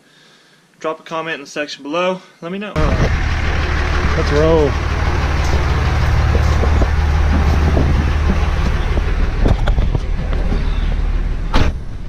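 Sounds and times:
pickup truck idling: 2.8s - 12.0s
car door slamming shut: 11.5s - 11.9s.

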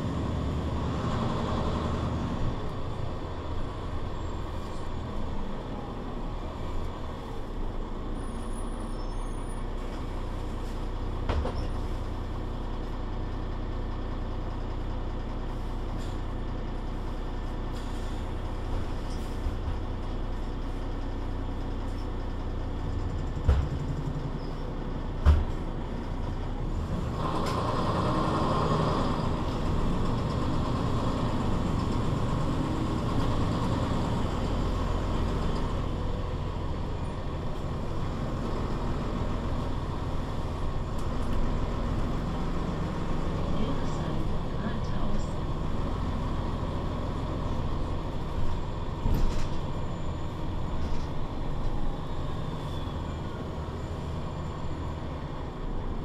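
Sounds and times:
bus engine drone: 0.0s - 56.0s.

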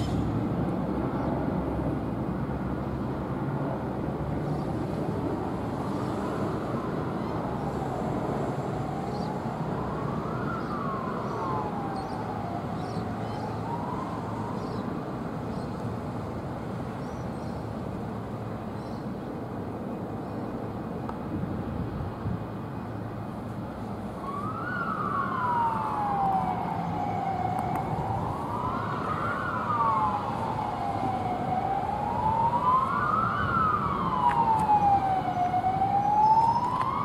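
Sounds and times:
low rumble of vehicles: 0.0s - 37.0s
siren wailing: 7.7s - 14.9s, 24.2s - 37.0s.

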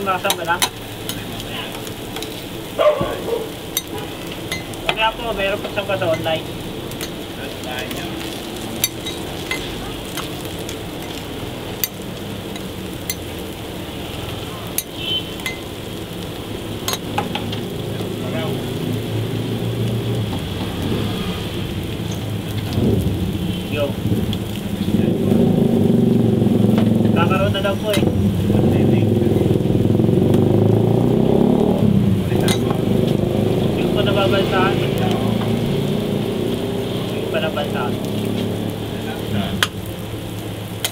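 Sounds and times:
meat sizzling on griddle: 0.0s - 40.9s
low rumble: 18.0s - 36.7s.

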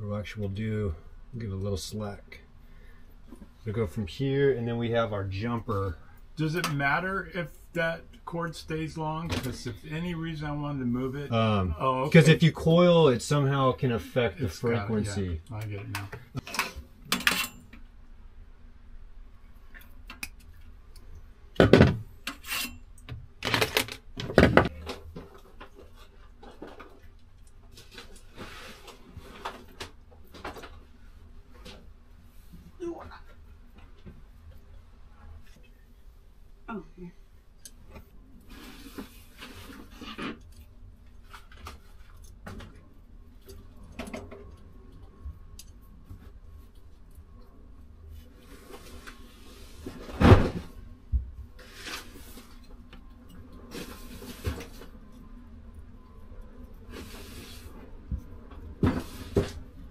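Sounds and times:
wire and tools clicking and rustling: 15.4s - 17.9s, 19.6s - 32.0s, 39.2s - 47.8s.

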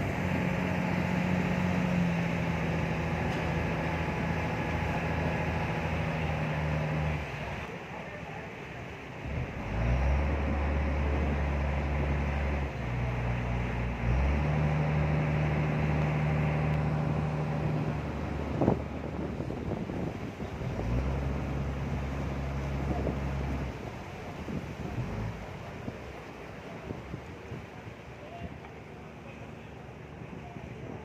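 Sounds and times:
speedboat engine humming: 0.0s - 31.0s
water rushing past hull: 0.0s - 31.0s
wind on microphone: 15.1s - 26.1s.

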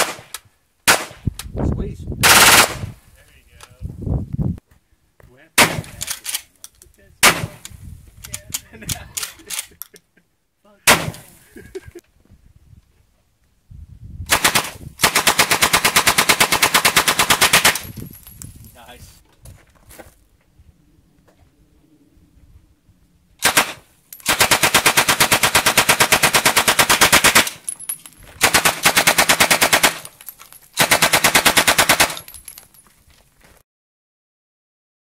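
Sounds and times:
shotgun blasts: 0.0s - 1.3s, 2.2s - 2.9s, 5.6s - 6.1s, 7.2s - 7.6s, 10.8s - 11.4s, 23.4s - 27.6s
submachine gun full-auto burst: 2.2s - 2.8s, 14.3s - 17.8s, 23.4s - 27.5s, 28.4s - 30.0s, 30.8s - 32.2s.

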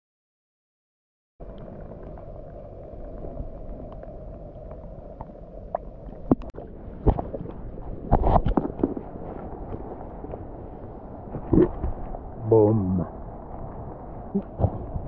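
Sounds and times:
water splashes and knocks: 5.7s - 10.5s, 14.4s - 15.0s.

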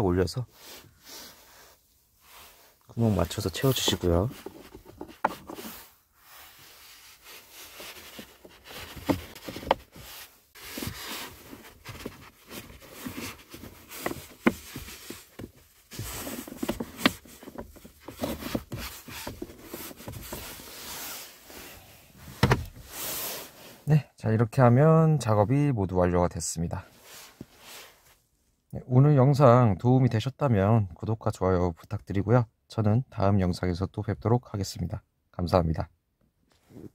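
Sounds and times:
hands rubbing and rustling plastic: 6.6s - 21.2s.

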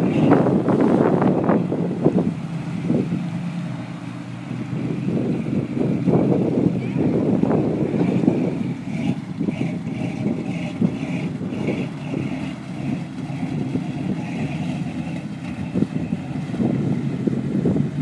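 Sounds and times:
truck engine running: 0.0s - 18.0s
truck ploughing through muddy water: 0.0s - 18.0s.

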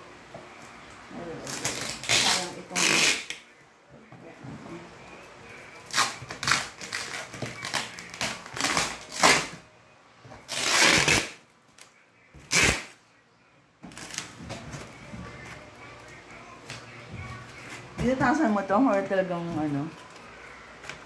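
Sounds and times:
plastic crinkling and ripping: 1.4s - 3.4s, 5.8s - 9.6s, 10.4s - 13.0s, 13.9s - 15.0s
scissors cutting plastic wrap: 1.4s - 3.4s, 5.8s - 9.6s, 10.4s - 12.9s.

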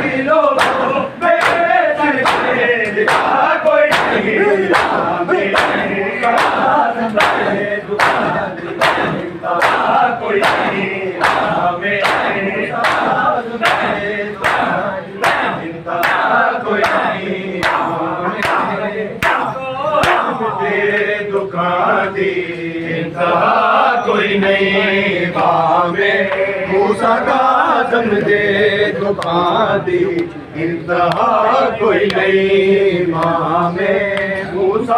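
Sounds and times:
men beating their chests: 0.0s - 21.0s
men chanting together: 0.0s - 34.9s.

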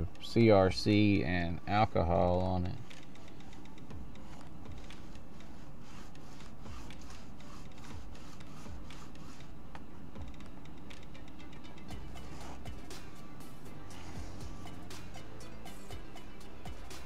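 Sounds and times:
rag rubbing on model track: 4.2s - 9.5s.

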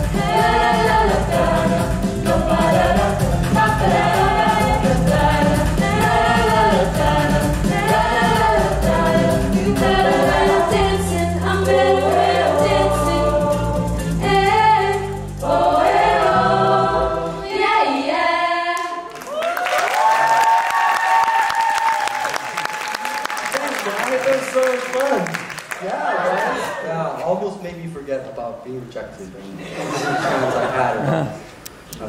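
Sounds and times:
backing track with bass beat: 0.0s - 12.0s
choir singing pop song: 0.0s - 19.2s
audience applause: 19.1s - 26.8s.

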